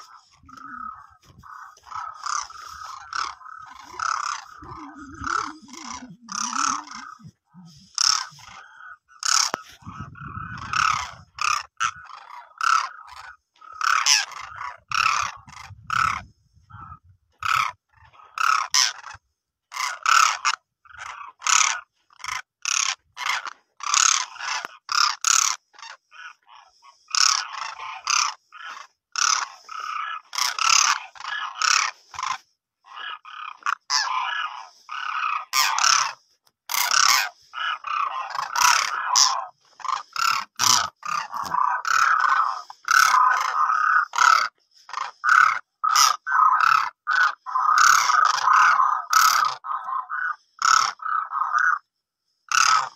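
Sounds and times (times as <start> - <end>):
cranes calling: 0.0 - 52.9.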